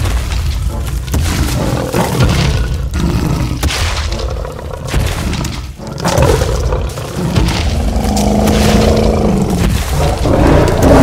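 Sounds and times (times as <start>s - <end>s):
creature roaring: 6.0s - 11.0s.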